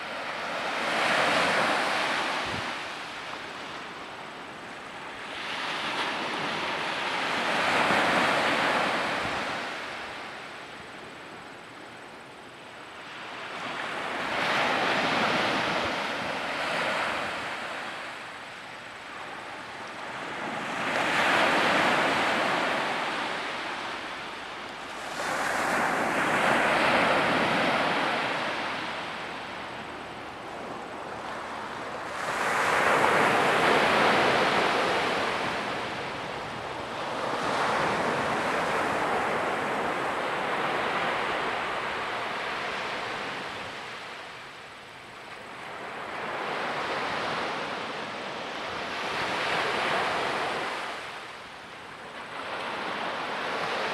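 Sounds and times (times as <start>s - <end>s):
small waves breaking on shore: 13.0s - 53.9s.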